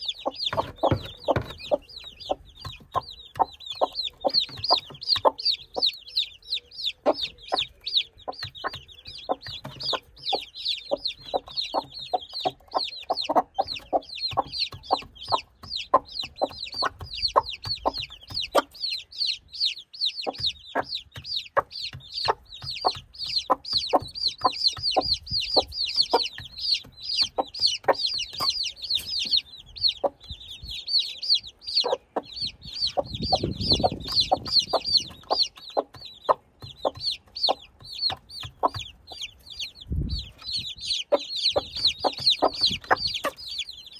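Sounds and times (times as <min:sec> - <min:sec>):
beaks pecking on stone: 0:00.0 - 0:30.4, 0:31.3 - 0:43.9
chicks peeping: 0:00.0 - 0:43.9.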